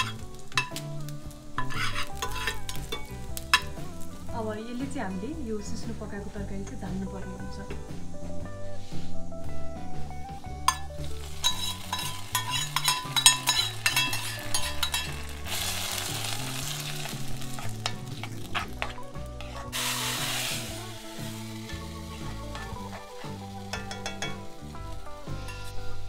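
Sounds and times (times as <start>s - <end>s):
spoon clinking and scraping pot: 0.0s - 0.8s, 1.6s - 3.8s, 10.7s - 20.4s, 21.6s - 24.6s, 25.3s - 25.9s
hot oil sizzling: 0.0s - 6.2s, 7.9s - 26.0s.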